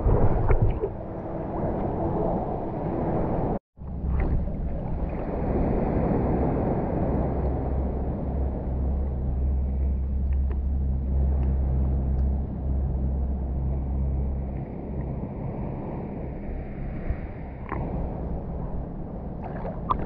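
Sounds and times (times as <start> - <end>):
water splashes and ticks: 0.0 - 2.4, 3.8 - 5.4, 8.9 - 15.4, 17.0 - 20.0
low rumble with deep hum: 0.0 - 20.0.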